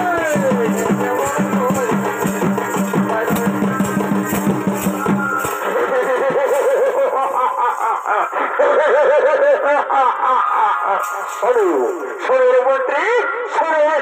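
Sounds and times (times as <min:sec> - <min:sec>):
rapid dense drumming: 0:00.0 - 0:08.3.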